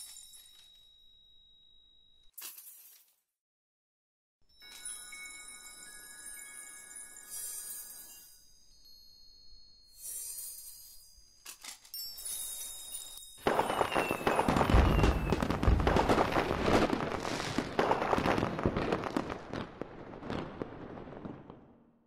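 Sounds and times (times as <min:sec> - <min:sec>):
fireworks banging and crackling: 0:13.4 - 0:21.8.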